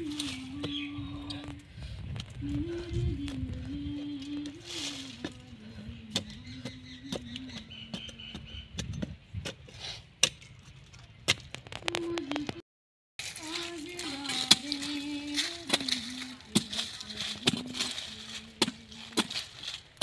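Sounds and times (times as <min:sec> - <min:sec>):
spade chopping into stony soil: 0:08.8 - 0:10.6, 0:15.4 - 0:18.0.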